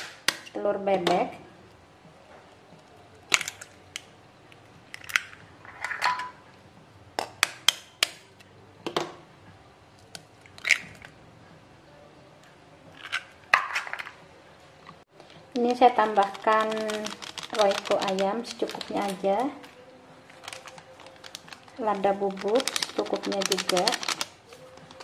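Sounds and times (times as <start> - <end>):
eggshells cracking: 15.5 - 19.2, 20.3 - 25.0.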